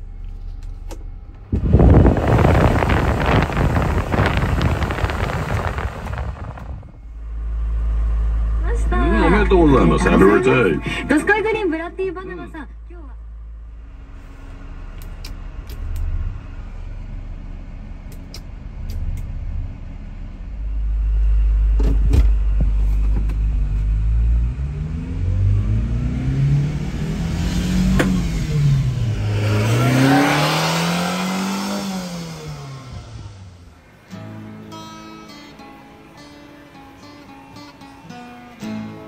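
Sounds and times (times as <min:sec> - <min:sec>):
truck engine revving: 0:01.1 - 0:12.7, 0:23.6 - 0:38.8.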